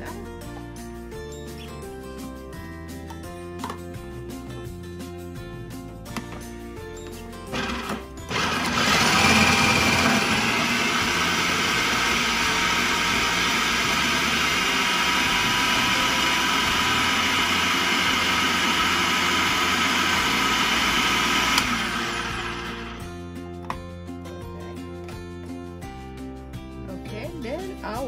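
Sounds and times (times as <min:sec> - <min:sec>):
food processor motor whirring: 0:07.5 - 0:23.1.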